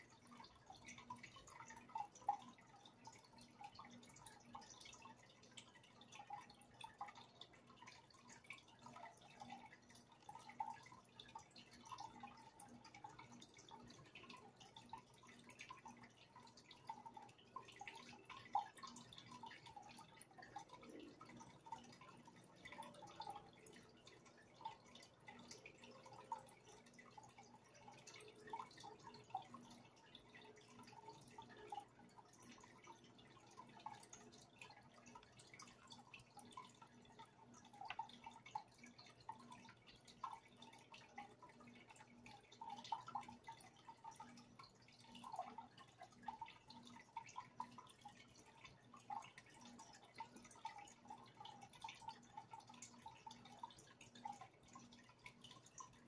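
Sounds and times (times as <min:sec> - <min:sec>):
aquarium water dripping: 0:00.0 - 0:56.0
low steady hum: 0:00.0 - 0:56.0.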